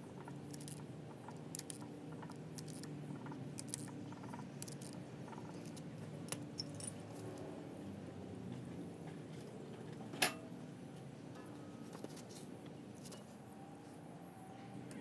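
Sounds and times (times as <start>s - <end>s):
steady low hum: 0.0s - 15.0s
metallic clinks of tools: 5.6s - 7.3s.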